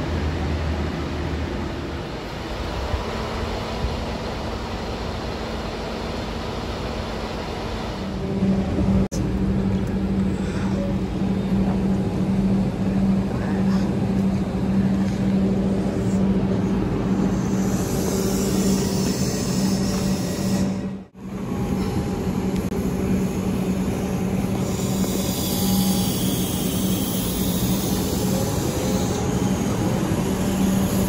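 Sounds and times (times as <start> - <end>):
electric train humming: 0.0 - 31.0
hiss: 24.6 - 31.0.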